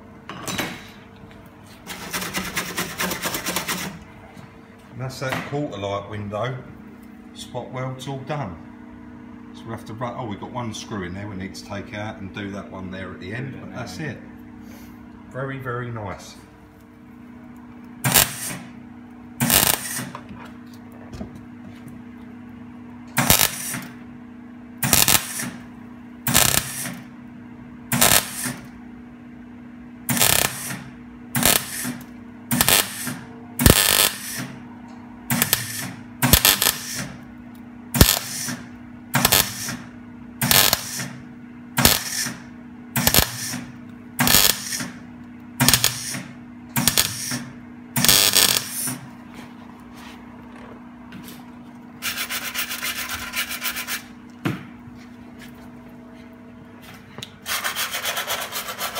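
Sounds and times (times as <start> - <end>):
low welder hum: 0.0 - 58.9
welding arc crackle: 18.0 - 18.7, 19.4 - 20.1, 23.2 - 23.9, 24.8 - 25.6, 26.3 - 27.0, 27.9 - 28.6, 30.1 - 34.5, 35.3 - 37.2, 38.0 - 38.6, 39.2 - 39.8, 40.4 - 41.2, 41.8 - 42.4, 43.0 - 43.6, 44.2 - 44.9, 45.6 - 46.2, 46.8 - 47.4, 48.0 - 49.0.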